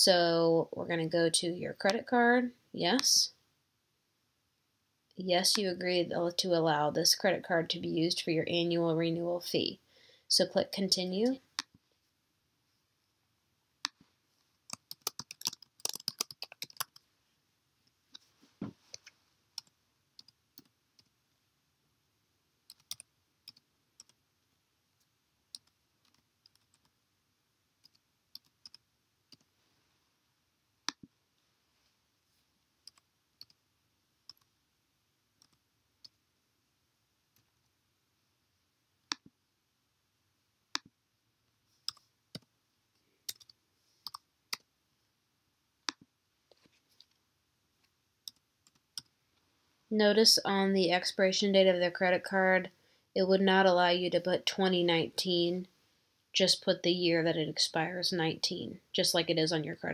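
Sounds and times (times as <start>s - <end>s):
keyboard keys clicking: 14.7s - 17.0s.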